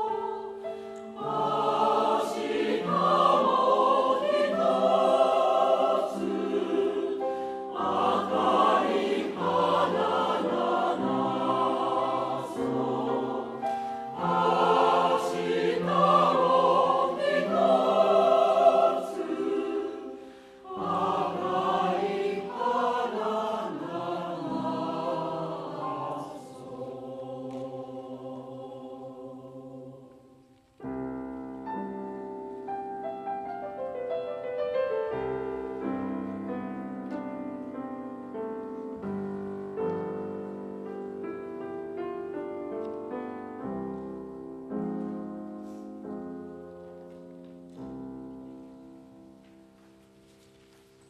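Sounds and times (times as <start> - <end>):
mixed choir holding a chord: 0.0 - 30.4.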